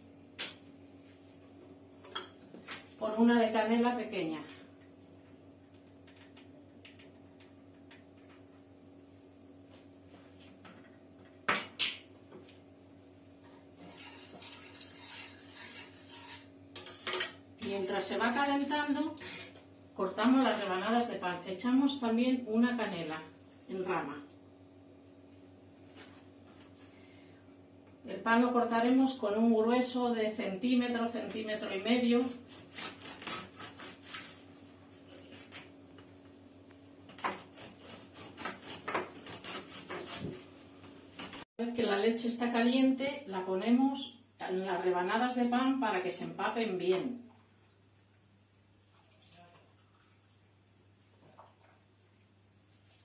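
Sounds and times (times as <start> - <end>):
faint steady hum: 0.0 - 53.0
kitchenware clattering: 11.5 - 12.2
knife slicing crusty bread: 32.4 - 35.6, 37.1 - 40.4.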